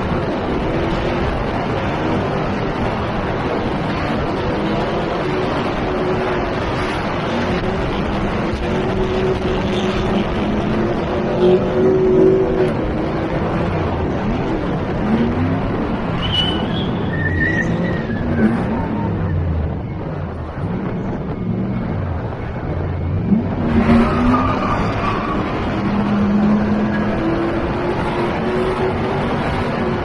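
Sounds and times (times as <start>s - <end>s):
truck engine revving: 0.0s - 22.4s, 23.0s - 30.0s
wind rush on microphone: 0.0s - 30.0s
tyre squeals: 16.2s - 19.4s.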